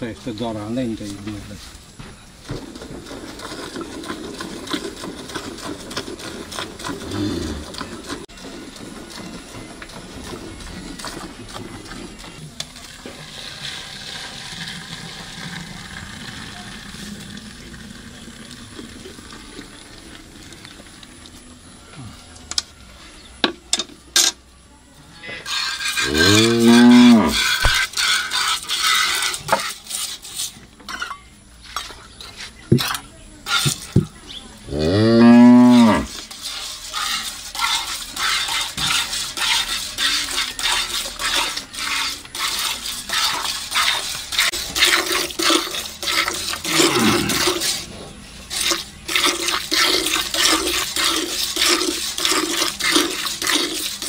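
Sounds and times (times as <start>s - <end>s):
cow mooing: 26.0s - 27.4s, 34.7s - 36.1s, 46.7s - 47.5s
milk squirting into metal pail: 36.1s - 47.9s, 48.5s - 54.0s.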